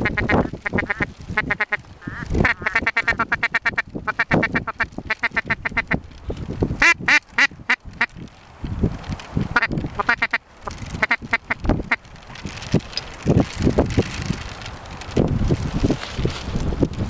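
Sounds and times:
ducks quacking: 0:00.0 - 0:06.0, 0:06.8 - 0:08.1, 0:09.5 - 0:12.0.

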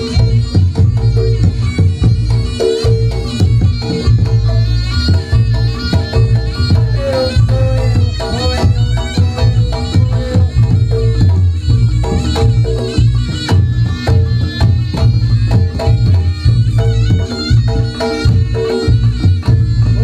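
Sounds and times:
drums beating fast rhythm: 0:00.0 - 0:20.0
reedy shawm melody: 0:00.0 - 0:20.0.

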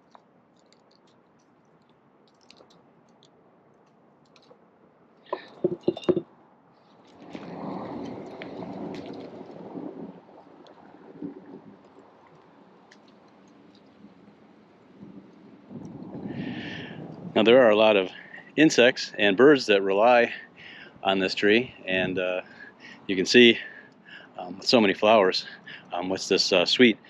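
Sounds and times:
sharp knocks: 0:05.3 - 0:06.2.

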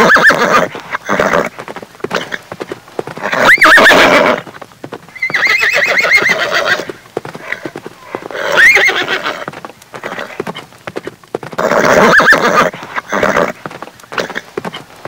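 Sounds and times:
horse whinnying: 0:00.0 - 0:02.4, 0:03.2 - 0:04.5, 0:05.2 - 0:10.4, 0:11.6 - 0:13.6
hoof steps clicking: 0:00.0 - 0:15.0.

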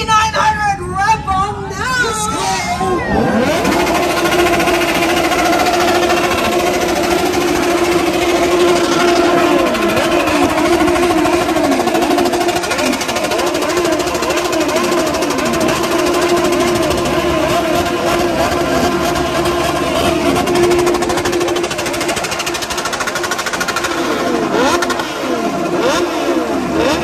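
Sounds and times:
motorcycle engines revving: 0:01.9 - 0:27.0.

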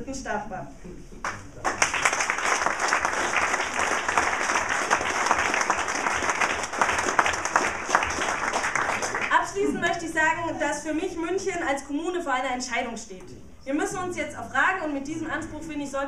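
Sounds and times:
audience applauding: 0:01.2 - 0:09.7.

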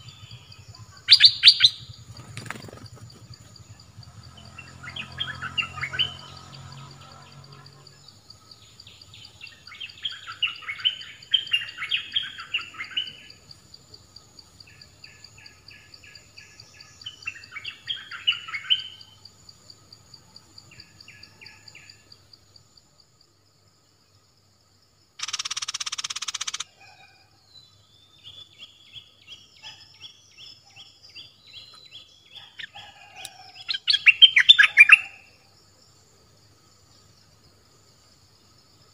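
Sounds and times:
bird chattering song: 0:00.0 - 0:07.3, 0:08.6 - 0:13.4, 0:14.6 - 0:19.1, 0:25.2 - 0:27.0, 0:28.0 - 0:35.3.

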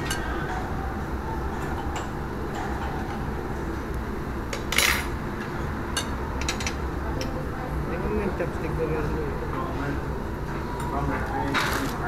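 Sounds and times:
steady low hum: 0:00.0 - 0:12.0
tableware clatter: 0:04.5 - 0:05.2, 0:05.9 - 0:07.3, 0:10.8 - 0:12.0.

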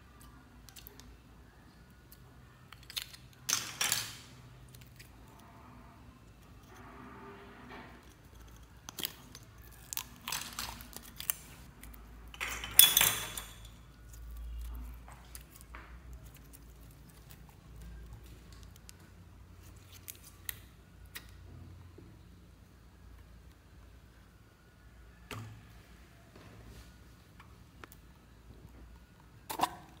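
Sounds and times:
plastic clicks and crackles: 0:02.1 - 0:05.1.

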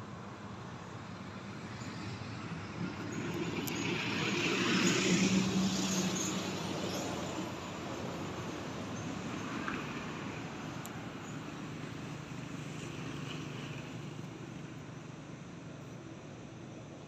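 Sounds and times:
vehicle passing by: 0:01.6 - 0:10.6.

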